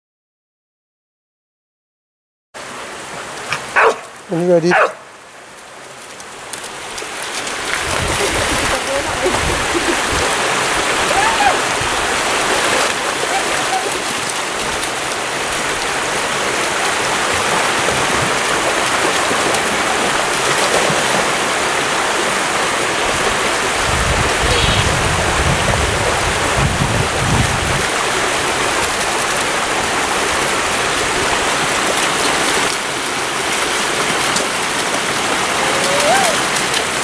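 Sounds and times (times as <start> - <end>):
stream rushing over rocks: 2.6 - 37.0
dog splashing in water: 6.7 - 25.0.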